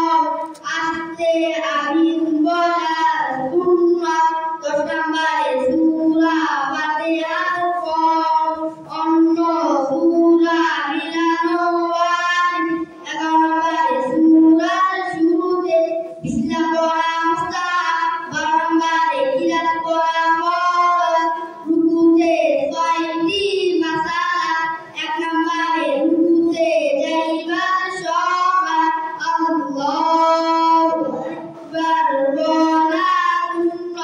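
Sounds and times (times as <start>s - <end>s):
boys singing in unison: 0.0s - 34.0s.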